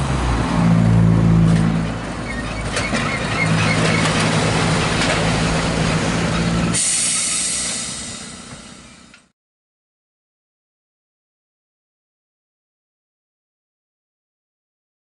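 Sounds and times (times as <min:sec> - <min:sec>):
electric tram motor hum: 0:00.0 - 0:09.3
wheels rumbling on rails: 0:00.0 - 0:09.3
metal clanks: 0:01.5 - 0:07.4.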